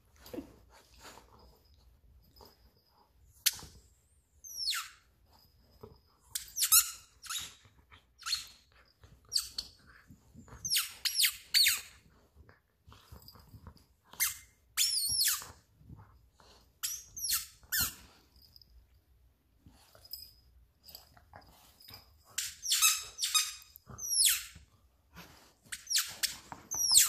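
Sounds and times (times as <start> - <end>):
dog chewing squeaky toy: 4.4 - 5.1, 6.3 - 12.1, 13.1 - 16.1, 16.8 - 18.1, 21.9 - 24.7, 25.6 - 27.0.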